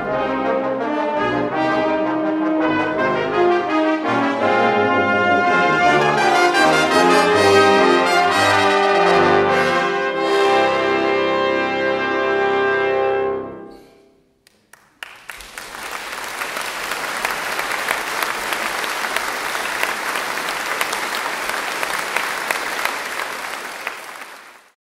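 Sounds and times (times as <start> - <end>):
brass ensemble playing: 0.0 - 13.7
audience applause: 14.5 - 24.8.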